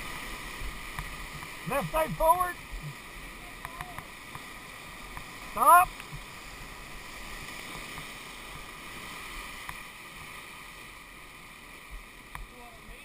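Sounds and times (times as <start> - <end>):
river rapids rushing: 0.0 - 13.0
faint clicks: 3.6 - 4.5.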